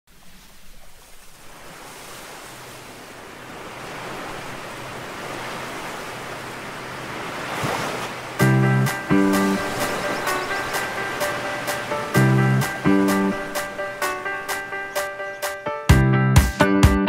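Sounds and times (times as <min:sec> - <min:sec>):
ocean surf on beach: 0:00.1 - 0:15.7
music with loud chord: 0:08.4 - 0:17.0.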